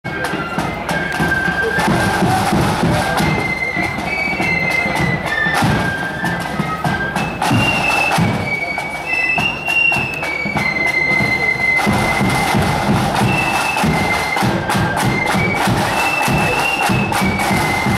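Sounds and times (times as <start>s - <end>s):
shrill flutes playing melody: 0.1s - 17.9s
steady drum beat: 0.2s - 4.0s, 11.2s - 17.9s.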